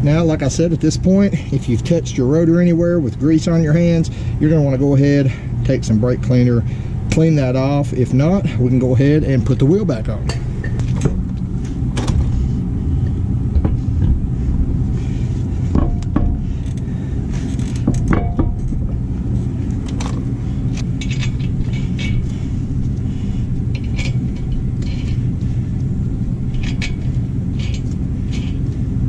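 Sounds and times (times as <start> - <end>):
steady low rumble: 0.0 - 29.0
lug nuts clicking and clinking: 19.8 - 22.4, 26.5 - 28.8.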